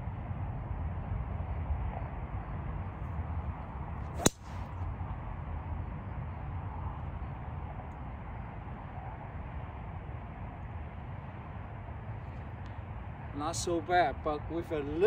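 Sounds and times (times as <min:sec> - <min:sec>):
golf club striking ball: 0:04.2 - 0:04.6.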